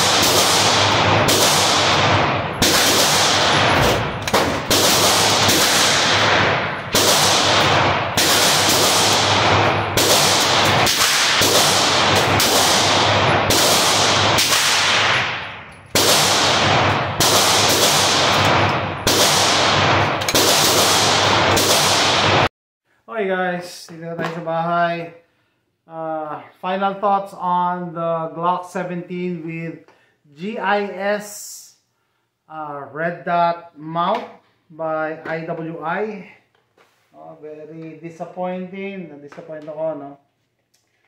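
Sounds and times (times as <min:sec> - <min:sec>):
pistol shots echoing indoors: 0:00.0 - 0:22.5.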